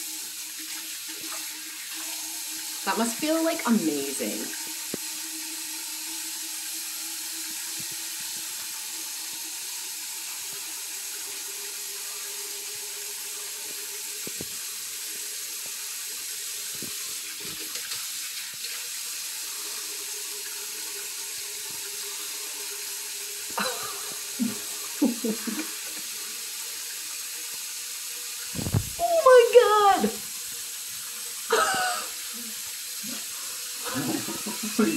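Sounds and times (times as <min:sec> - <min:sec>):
tap running into sink: 0:28.5 - 0:29.0.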